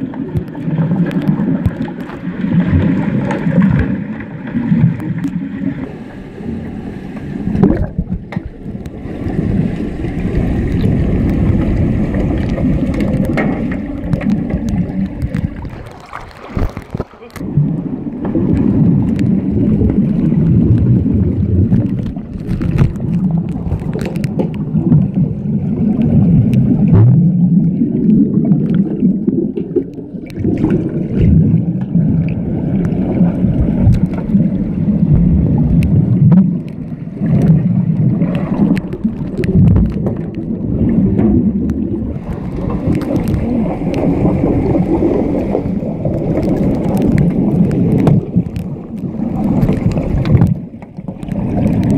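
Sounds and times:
muffled underwater churning rumble: 0:00.0 - 0:51.9
sharp clicks and knocks: 0:12.2 - 0:17.4.

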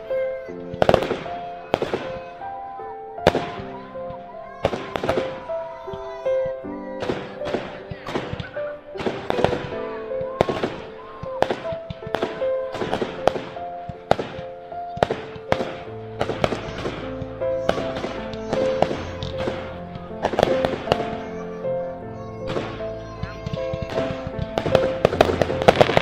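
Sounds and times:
fireworks bursting: 0:00.0 - 0:26.0.

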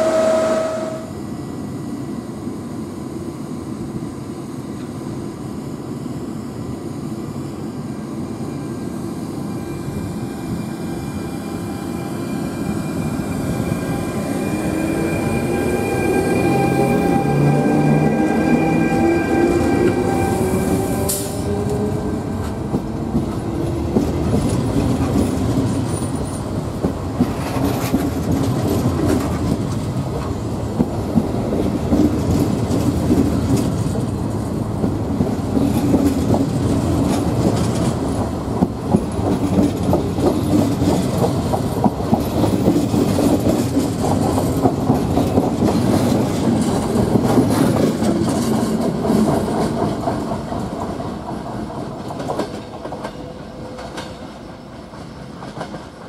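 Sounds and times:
rising whine: 0:00.0 - 0:01.5, 0:09.3 - 0:22.6
train wheels rumbling: 0:09.4 - 0:56.0.

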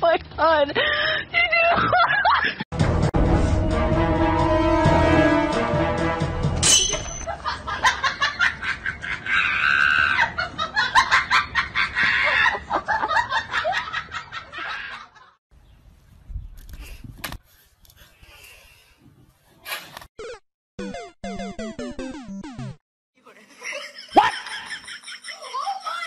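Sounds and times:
music: 0:02.8 - 0:06.6
fast cackling laughter: 0:07.4 - 0:15.4, 0:23.3 - 0:26.0.

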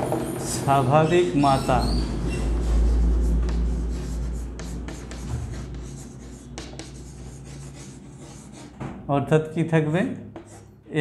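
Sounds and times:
chalk tapping: 0:00.0 - 0:09.0, 0:10.3 - 0:10.8
chalk scratching on blackboard: 0:00.1 - 0:08.8, 0:10.3 - 0:10.8
low rumble: 0:02.0 - 0:06.2.

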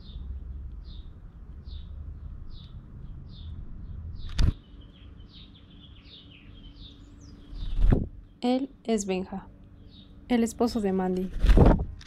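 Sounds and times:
sparrow chirping: 0:00.0 - 0:10.9.

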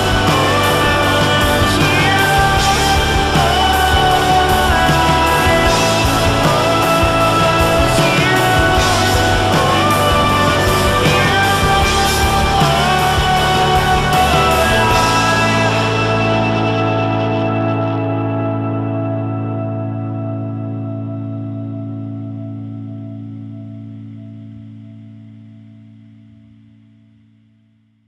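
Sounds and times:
rock music: 0:00.0 - 0:26.3.

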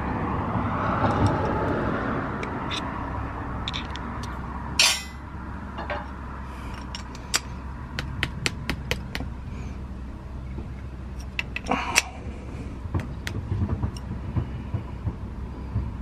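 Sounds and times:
metal axle clink: 0:02.4 - 0:03.0, 0:03.6 - 0:07.6.

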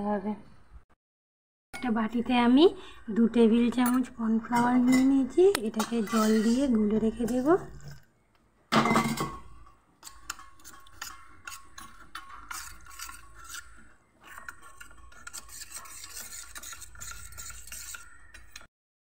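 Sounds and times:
metal spoon scraping a bowl: 0:03.7 - 0:08.3, 0:08.9 - 0:18.7.

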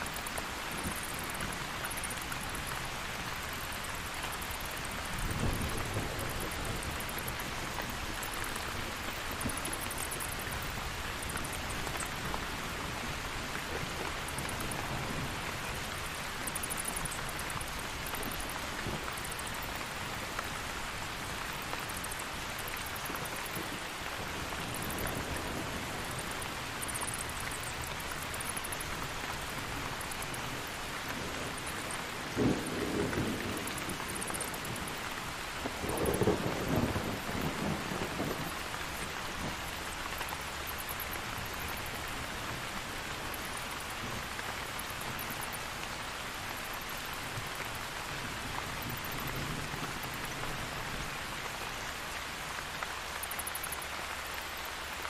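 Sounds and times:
heavy rain falling: 0:00.0 - 0:55.0
distant thunder rumble: 0:35.6 - 0:39.6.

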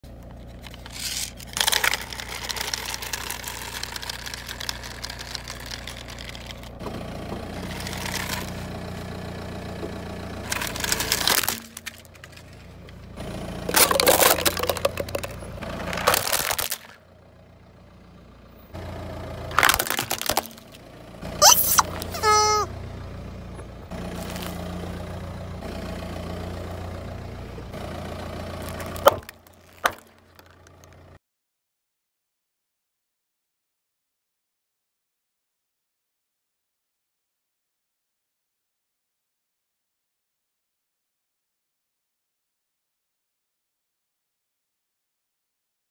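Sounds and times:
car engine running low: 0:00.0 - 0:31.2
tyre rolling on asphalt: 0:00.3 - 0:17.0, 0:24.0 - 0:24.9
plastic cups crushed crackling: 0:00.4 - 0:06.8, 0:07.6 - 0:08.7, 0:10.5 - 0:12.6, 0:13.6 - 0:17.0, 0:19.5 - 0:20.8, 0:21.4 - 0:22.7, 0:24.1 - 0:24.6, 0:28.6 - 0:31.0.

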